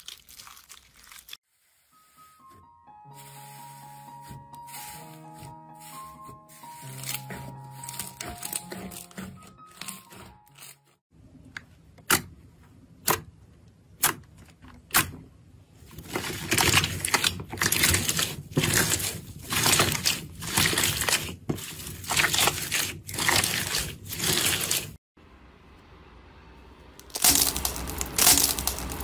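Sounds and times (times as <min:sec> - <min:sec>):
slime crackling crunches: 0:00.0 - 0:01.4, 0:27.0 - 0:29.0.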